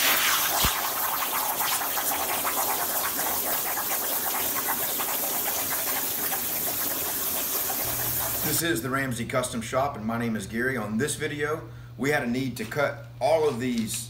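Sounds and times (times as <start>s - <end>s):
plasma torch cutting steel: 0.0s - 8.6s.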